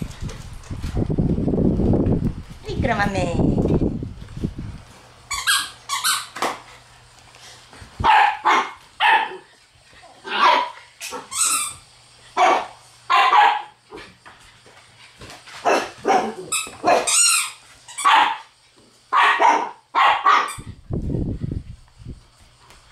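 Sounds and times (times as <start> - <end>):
dog barking and yipping: 8.0 - 9.5, 10.2 - 11.6, 12.4 - 13.8, 15.6 - 18.5, 19.1 - 20.7
dog yelping: 15.7 - 18.4, 19.2 - 20.6.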